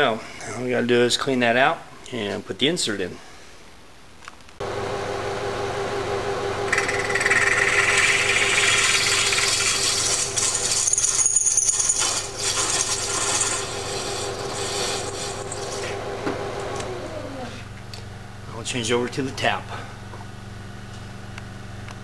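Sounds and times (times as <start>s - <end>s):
milling machine spindle running: 4.6s - 17.3s
drill grinding into metal: 6.7s - 16.0s.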